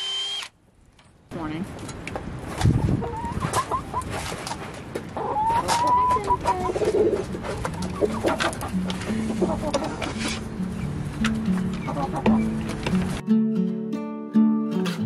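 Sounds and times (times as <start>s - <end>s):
chickens clucking: 2.5s - 13.2s.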